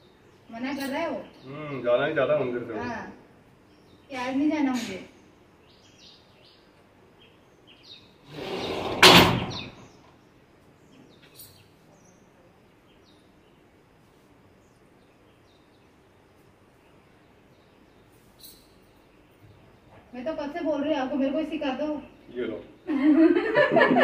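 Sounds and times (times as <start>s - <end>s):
faint bird chirps: 9.5s - 13.8s, 14.6s - 20.1s.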